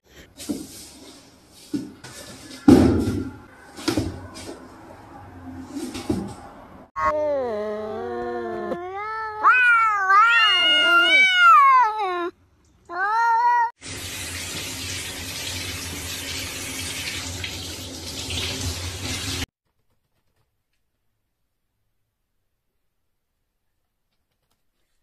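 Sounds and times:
cat meowing: 7.0 - 13.7
shower spraying water: 13.8 - 19.5.

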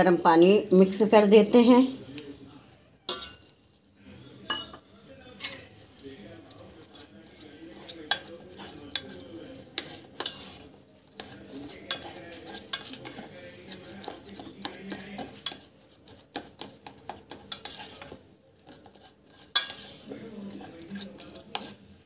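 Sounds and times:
clinks against metal pot: 3.1 - 3.7
hand mashing soaked bread: 6.7 - 22.0.

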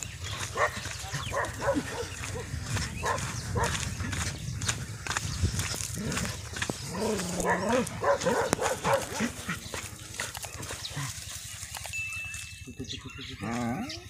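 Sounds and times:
dog barking: 0.3 - 3.8, 6.9 - 9.5.

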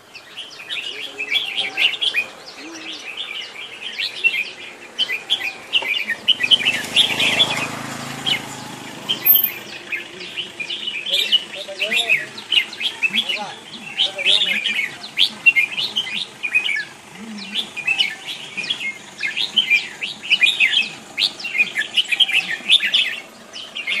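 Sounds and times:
birds chirping in chorus: 0.0 - 24.0.

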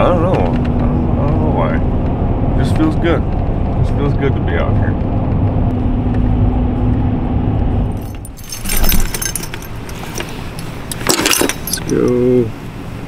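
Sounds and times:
engine hum: 0.0 - 13.0
road noise inside vehicle: 0.0 - 13.0
fishing lures jingling: 8.0 - 12.3.

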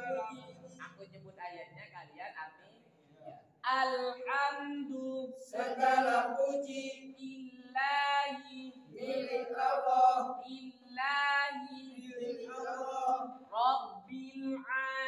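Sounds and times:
men chanting verses: 0.0 - 0.6, 5.4 - 7.2, 8.8 - 10.7, 11.7 - 14.4.

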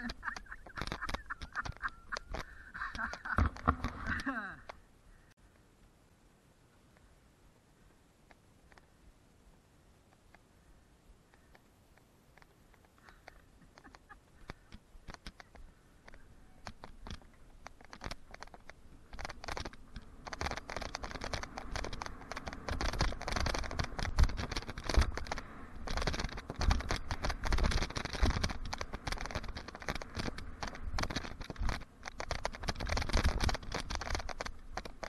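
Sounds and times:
bike rattling and clicking: 0.0 - 4.3, 12.4 - 35.0.

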